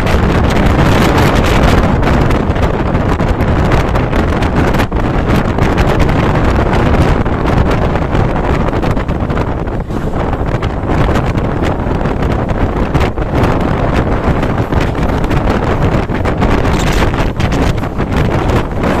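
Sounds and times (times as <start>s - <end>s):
train rumbling: 0.0s - 19.0s
wind buffeting microphone: 0.0s - 19.0s.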